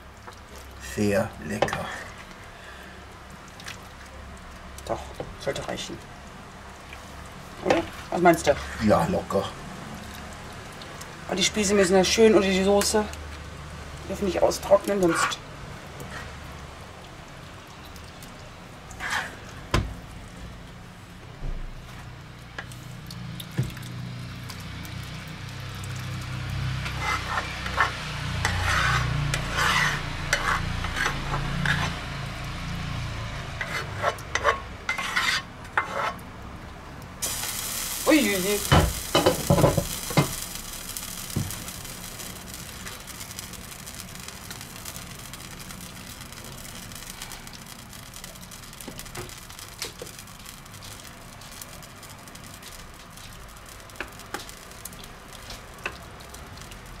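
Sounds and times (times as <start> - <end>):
spatula stirring sauce: 18.9 - 19.6, 26.7 - 32.6, 33.4 - 36.2
steady hiss: 37.2 - 56.5.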